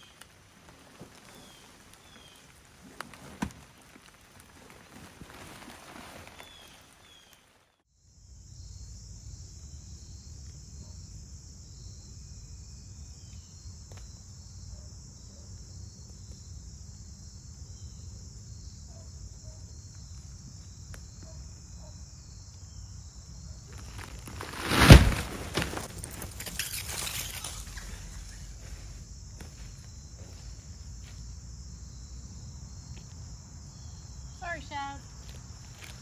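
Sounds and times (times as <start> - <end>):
insect chorus trilling: 8.0 - 36.0.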